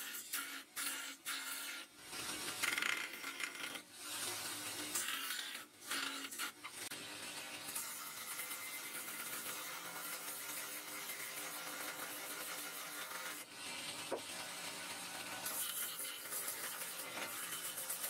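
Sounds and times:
belt grinder sanding metal: 0:07.4 - 0:18.0.

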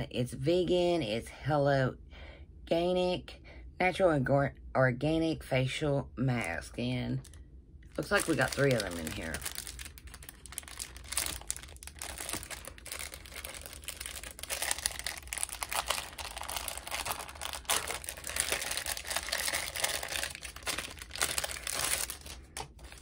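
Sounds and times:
packaging crinkling and rustling: 0:07.2 - 0:23.0.

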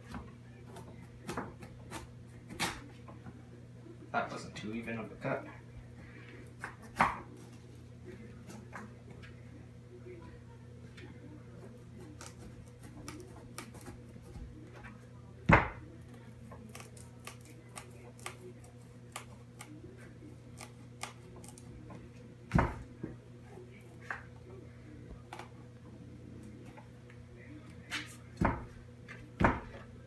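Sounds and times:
knife cracking through squash rind: 0:12.0 - 0:14.4, 0:16.5 - 0:21.7.

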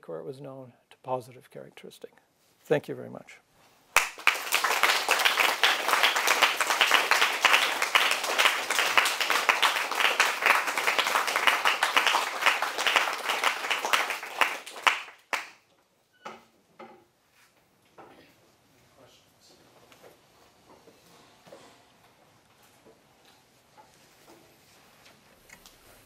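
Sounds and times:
audience applauding: 0:04.0 - 0:15.6.

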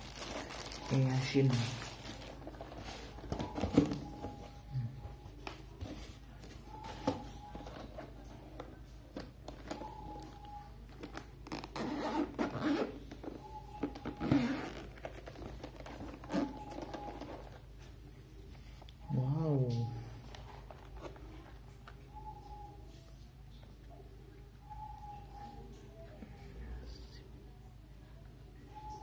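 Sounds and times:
hands rubbing and scraping case: 0:11.0 - 0:17.8.

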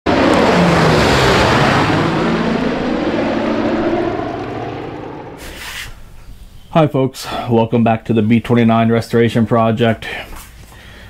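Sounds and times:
propeller aircraft passing: 0:00.0 - 0:06.7.

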